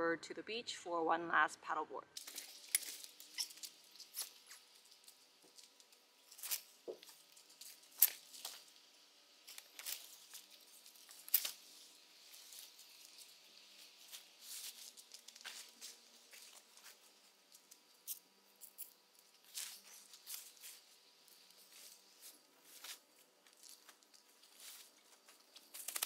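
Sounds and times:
tent fabric rustling: 6.2 - 17.5, 19.4 - 26.0.

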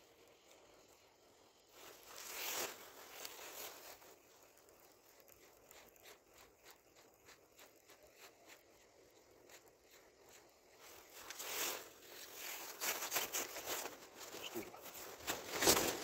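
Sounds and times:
clothing rustling on microphone: 10.8 - 16.0.

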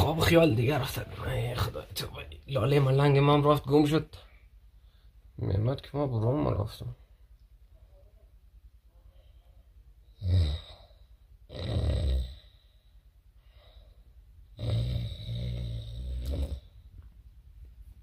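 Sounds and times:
man snoring: 10.2 - 12.6, 14.6 - 16.7.

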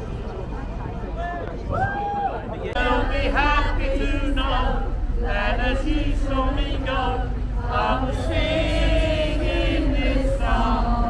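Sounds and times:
steady low rumble: 0.0 - 11.0
group singing chant: 2.7 - 11.0.

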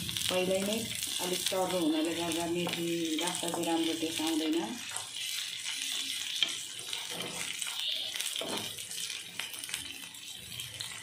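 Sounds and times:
chillies sizzling in hot oil: 0.0 - 11.0
wooden spatula scraping pan: 4.8 - 7.6.

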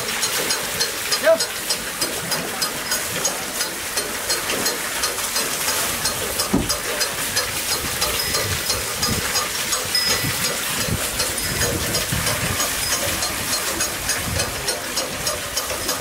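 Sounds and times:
water spilling from pots: 0.0 - 16.0
wooden wheel clacking: 0.2 - 16.0
soft knocks: 6.4 - 6.9.

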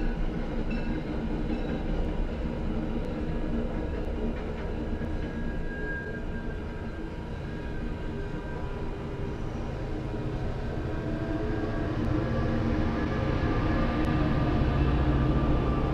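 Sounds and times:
train wheels rumbling on rail: 0.0 - 15.9
high wheel squeal: 5.2 - 9.8.

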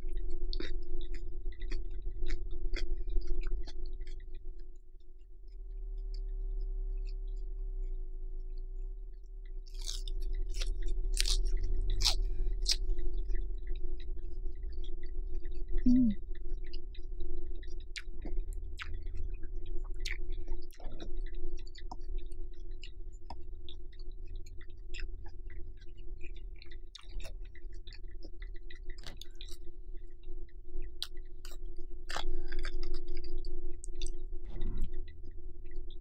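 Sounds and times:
close-miked chewing and crunching: 0.0 - 36.0
steady low hum: 0.0 - 36.0
wet mouth clicks: 14.8 - 17.0, 24.9 - 29.6, 31.0 - 35.2.

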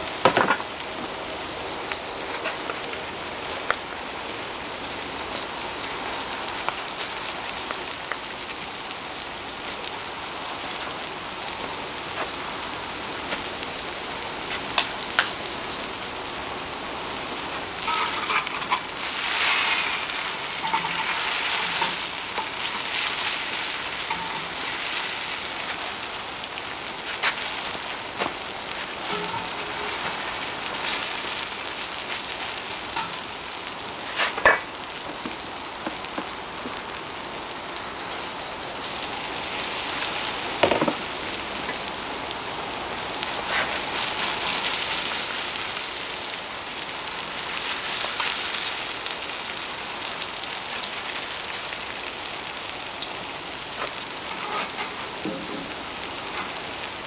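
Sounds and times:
pancakes sizzling in oil: 0.0 - 57.0
spatula tapping and scraping metal: 17.8 - 18.9, 20.5 - 23.4, 29.1 - 30.2.

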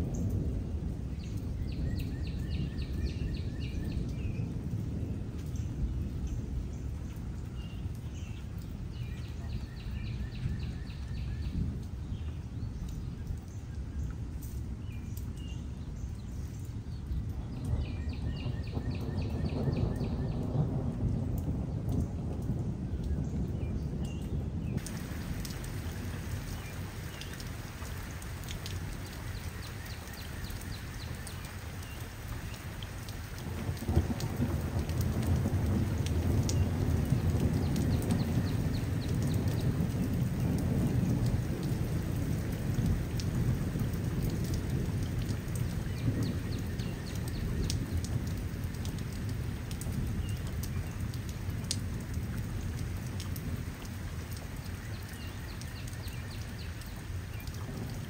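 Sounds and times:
rain drops ticking: 0.0 - 58.0
thunder rolling: 17.6 - 29.8, 33.0 - 50.2.

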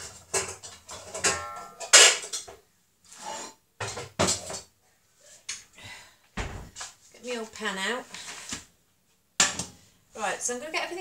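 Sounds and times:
metal pots and pans clattering: 0.0 - 2.6, 3.2 - 4.7.

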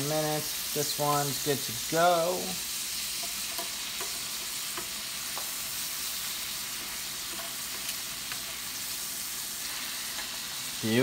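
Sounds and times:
cutlets sizzling in hot oil: 0.0 - 11.0
metal tongs clicking on pan: 3.2 - 5.5, 6.8 - 8.6.

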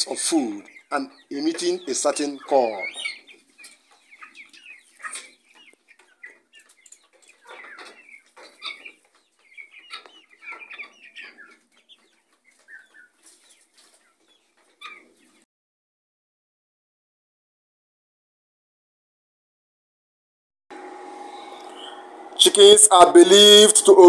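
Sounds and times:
chickens clucking: 0.0 - 15.5, 20.8 - 24.0.

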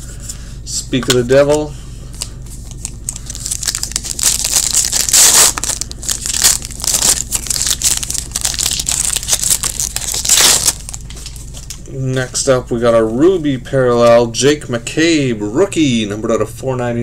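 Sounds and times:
plastic wrapper tearing and crinkling: 2.6 - 11.8.

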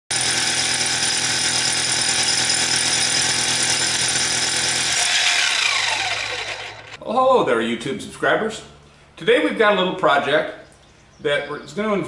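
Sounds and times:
rotary hammer drilling concrete: 0.1 - 7.0
motor whine winding down: 4.7 - 7.0.

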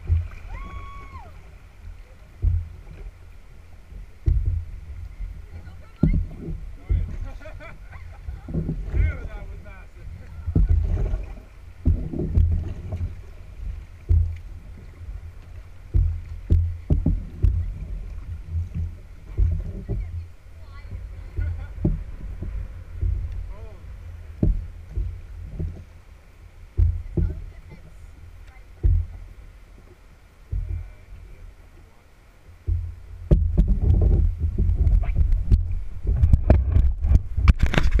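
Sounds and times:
paddle strokes splashing: 0.0 - 38.0
waves slapping a canoe hull: 0.0 - 38.0
low rumble of camera handling: 33.3 - 38.0.

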